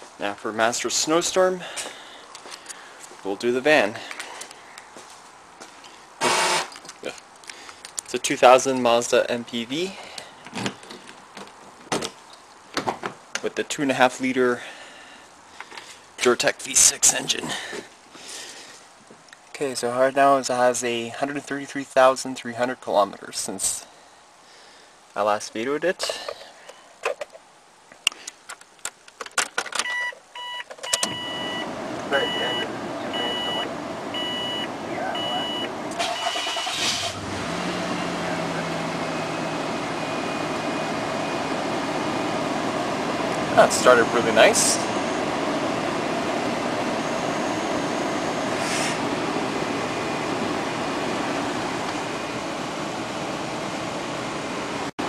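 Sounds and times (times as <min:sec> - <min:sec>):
dashboard warning chime: 0:29.9 - 0:36.8, 0:43.1 - 0:48.6
car engine cranking and starting: 0:30.7 - 0:54.6
brief hiss: 0:48.6 - 0:49.0.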